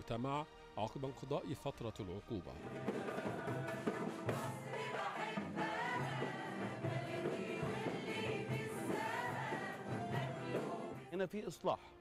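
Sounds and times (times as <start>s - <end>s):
band with keyboard and drums: 2.6s - 11.1s
women's choir singing: 2.7s - 11.1s.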